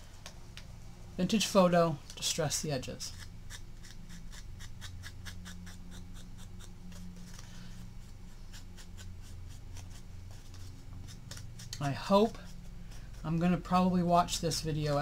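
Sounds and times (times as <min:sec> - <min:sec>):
steady low hum: 0:00.0 - 0:15.0
foam applicator scratching paper: 0:03.1 - 0:13.8.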